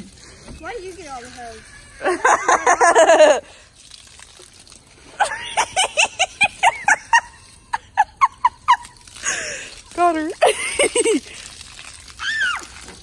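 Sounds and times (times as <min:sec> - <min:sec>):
person laughing: 0:02.0 - 0:03.5, 0:05.2 - 0:09.6, 0:10.4 - 0:11.4.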